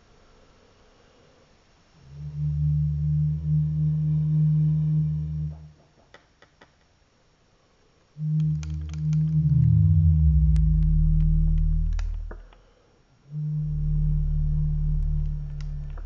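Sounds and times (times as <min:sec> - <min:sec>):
low electronic drone: 0:02.0 - 0:05.8, 0:08.2 - 0:12.5, 0:13.3 - 0:16.0
faint clicks: 0:08.2 - 0:09.8, 0:10.4 - 0:12.7, 0:15.0 - 0:16.0.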